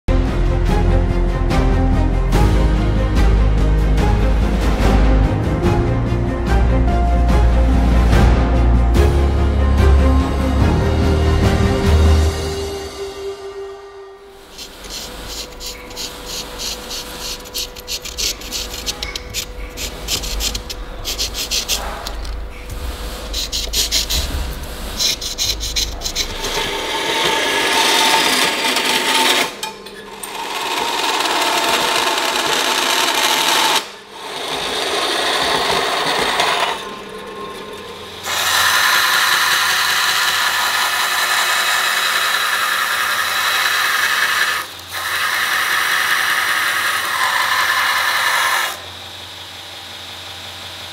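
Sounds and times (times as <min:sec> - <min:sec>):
bandsaw cutting steel: 0:14.2 - 0:49.6
belt grinder grinding metal: 0:14.3 - 0:49.0
marker scratching on metal: 0:14.4 - 0:29.5.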